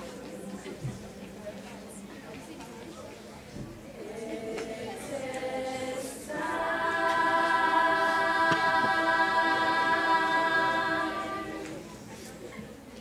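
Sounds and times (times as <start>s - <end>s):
choir singing a held chord: 4.0s - 11.9s.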